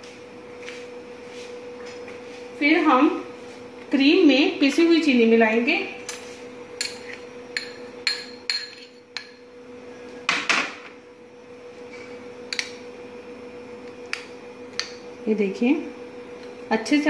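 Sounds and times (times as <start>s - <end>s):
steady low hum: 0.0s - 17.0s
spoon clinking against glass bowls: 6.1s - 9.4s.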